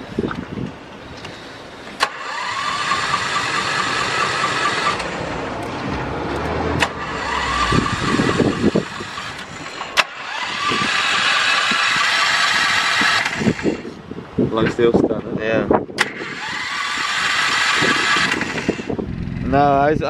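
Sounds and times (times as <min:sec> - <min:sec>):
starter motor cranking engine: 0:02.0 - 0:05.2, 0:06.8 - 0:13.9, 0:16.0 - 0:19.6.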